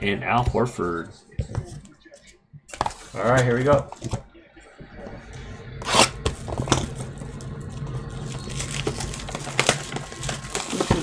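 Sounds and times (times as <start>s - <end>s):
cardboard scraping and tearing: 8.2s - 11.0s.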